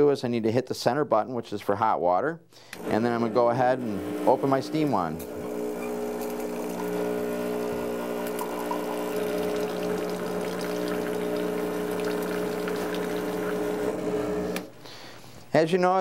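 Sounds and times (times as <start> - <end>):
espresso machine pump humming: 3.9 - 4.6, 5.2 - 14.8
water splashing into cup: 6.1 - 14.0.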